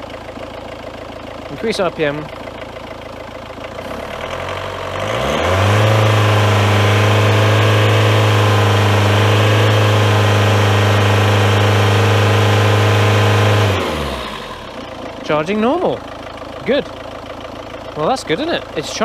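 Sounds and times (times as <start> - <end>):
car engine revving: 3.7 - 15.9.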